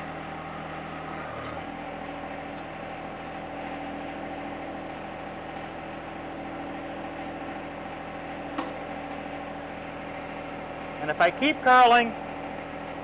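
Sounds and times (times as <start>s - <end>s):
tractor diesel engine running: 0.0s - 4.0s.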